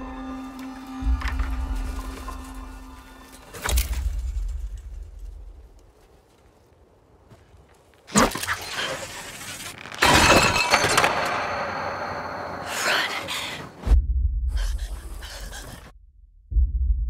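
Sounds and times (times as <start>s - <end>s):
glass bottles crashing and shattering: 9.9s - 11.7s
glass clattering and ringing: 10.0s - 12.6s.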